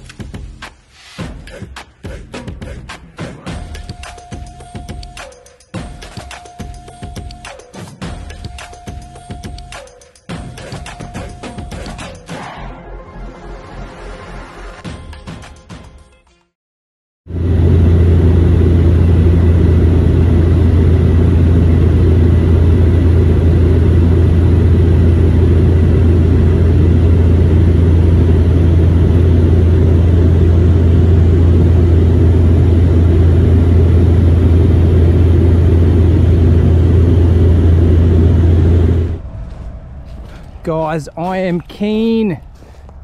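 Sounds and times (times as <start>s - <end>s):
aircraft engine drone in cabin: 17.3s - 43.0s.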